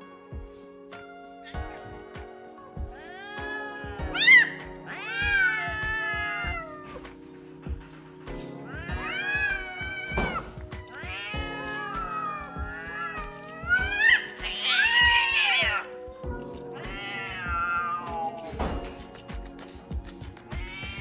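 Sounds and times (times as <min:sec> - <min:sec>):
cat yowling: 0:02.9 - 0:07.1, 0:08.6 - 0:18.8, 0:20.5 - 0:21.0.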